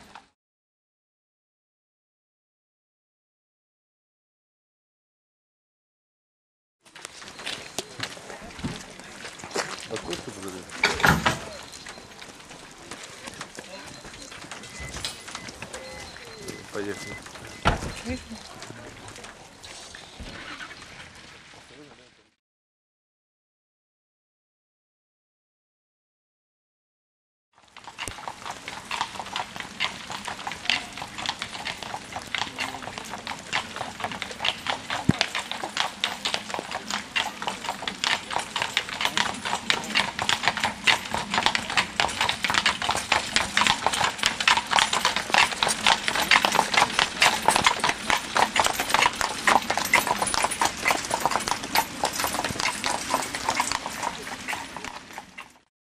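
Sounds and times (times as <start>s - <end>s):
hooves clip-clopping on wet road: 6.9s - 22.2s, 27.6s - 55.7s.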